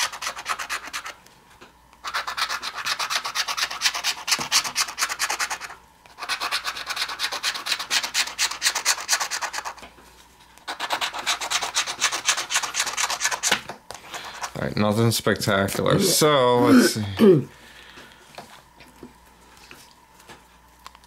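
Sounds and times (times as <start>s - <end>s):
scratching lottery ticket: 0.0s - 1.2s, 2.0s - 9.8s, 10.6s - 14.7s.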